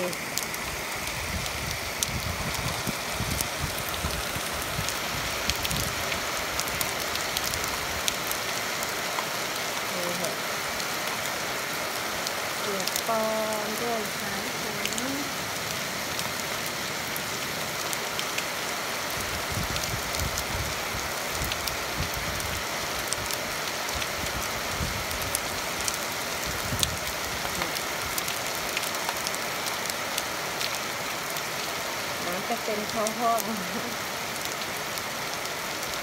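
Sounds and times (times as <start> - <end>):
steady rain hiss: 0.0 - 36.0
raindrops tapping: 12.2 - 15.2.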